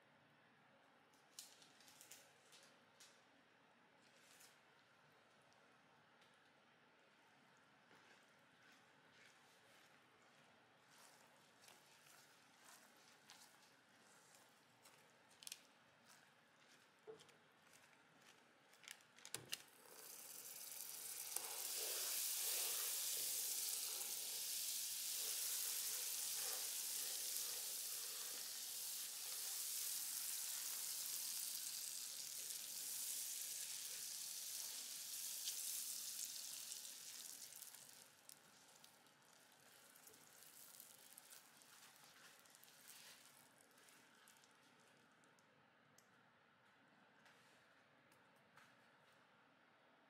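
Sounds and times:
caramel sizzling in a pan: 0:19.8 - 0:43.4.

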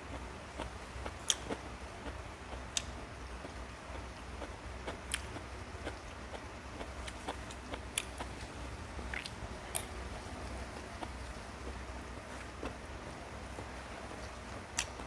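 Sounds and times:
chewing: 0:00.1 - 0:08.5, 0:09.1 - 0:09.9.

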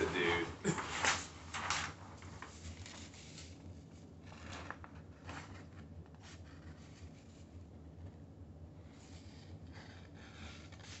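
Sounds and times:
paper rustling: 0:00.0 - 0:07.5
steady low hum: 0:00.0 - 0:11.0.

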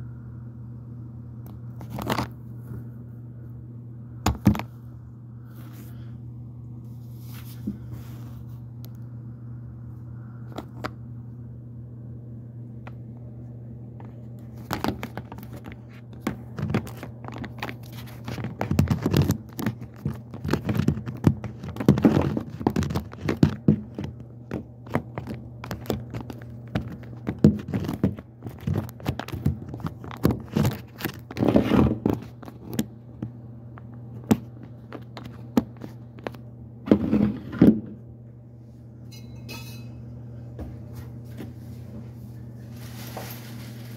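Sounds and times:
steady low hum: 0:00.0 - 0:43.9
knocks and scrapes in sink cabinet: 0:36.8 - 0:38.0.

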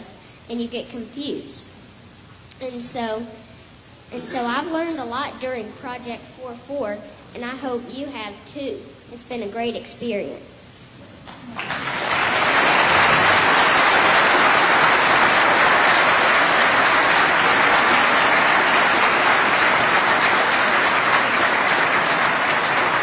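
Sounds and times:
audience applauding: 0:11.3 - 0:23.0.

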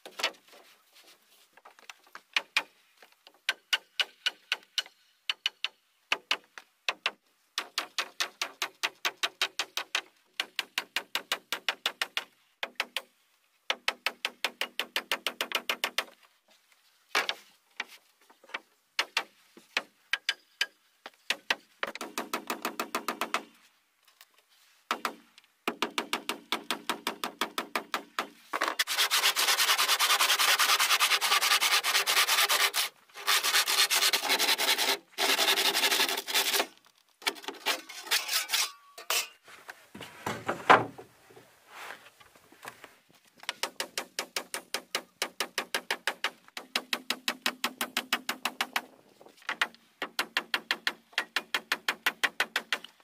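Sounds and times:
hand tool rasping wood: 0:28.8 - 0:36.7, 0:37.5 - 0:38.8.

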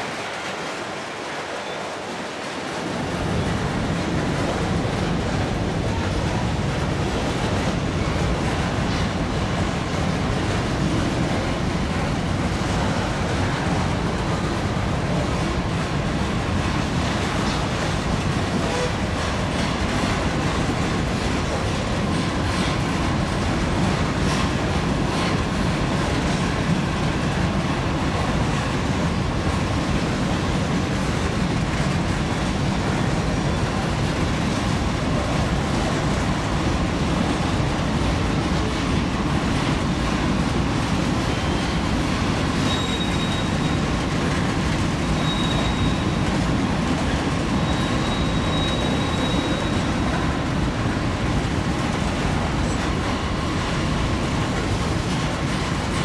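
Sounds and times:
train wheels rumbling on rail: 0:00.0 - 0:56.0
faint high wheel squeals: 0:42.6 - 0:44.0, 0:45.0 - 0:46.3, 0:47.5 - 0:50.0.

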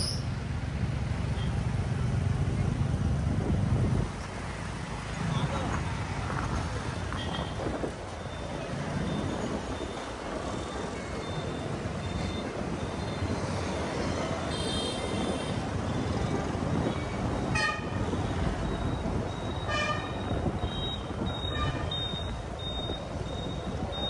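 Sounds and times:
traffic rumble from a motorcycle: 0:00.0 - 0:24.0
vehicle horns tooting: 0:07.0 - 0:07.8, 0:14.0 - 0:15.7, 0:16.8 - 0:18.5, 0:19.3 - 0:23.0
faint high beep: 0:08.2 - 0:14.0, 0:18.2 - 0:24.0.

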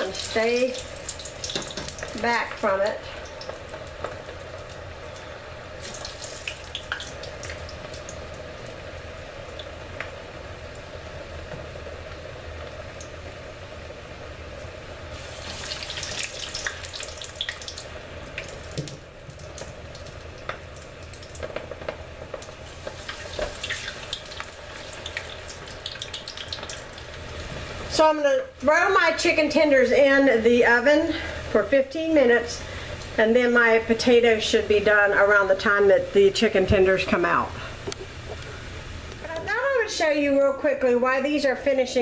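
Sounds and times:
oil spattering crackle: 0:00.0 - 0:02.6, 0:03.2 - 0:08.8, 0:15.2 - 0:27.4
deep-frying sizzle: 0:00.0 - 0:40.2.

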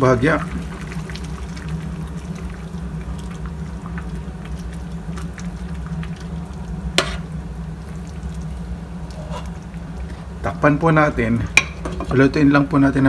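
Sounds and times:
steady low hum: 0:00.0 - 0:13.0
spoon stirring soup in pot: 0:07.0 - 0:07.4.

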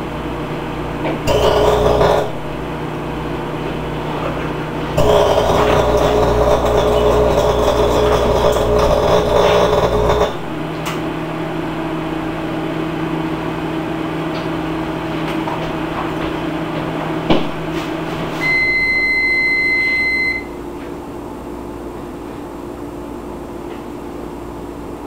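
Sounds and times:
microwave oven humming: 0:00.0 - 0:25.0
long microwave beep: 0:18.3 - 0:20.7.

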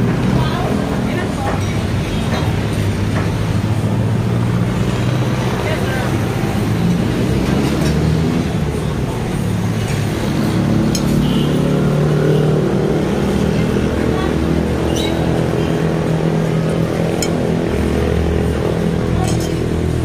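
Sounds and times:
road traffic: 0:00.0 - 0:20.0
cutlery clinking on ceramic bowls: 0:10.9 - 0:11.4, 0:17.0 - 0:17.7, 0:19.1 - 0:19.9.

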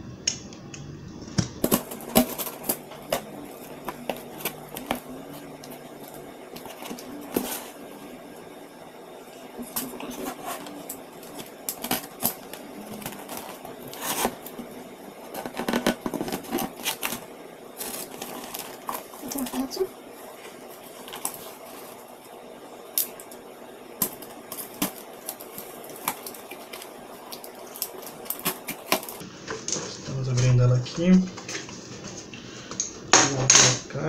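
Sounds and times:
knife cutting tape and cardboard: 0:11.7 - 0:14.6.

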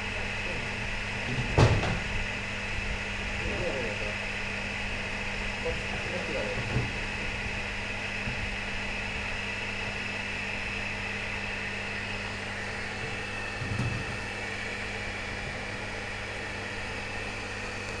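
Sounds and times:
generator hum and fan whir: 0:00.0 - 0:18.0.

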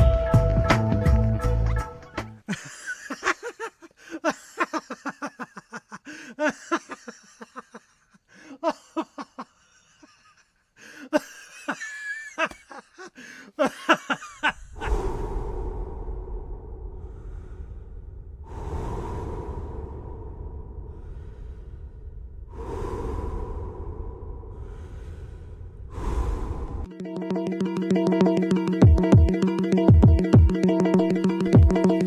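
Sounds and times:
person cackling laugh: 0:02.5 - 0:10.5, 0:11.1 - 0:14.7
whooshing swell: 0:14.6 - 0:26.9.

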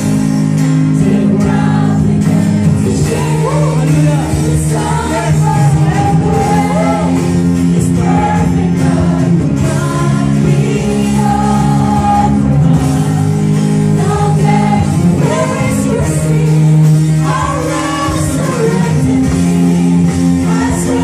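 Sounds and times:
drums: 0:00.0 - 0:21.0
electric and acoustic guitars: 0:00.0 - 0:21.0
man singing lead: 0:00.8 - 0:13.2
backing singers: 0:00.8 - 0:21.0.

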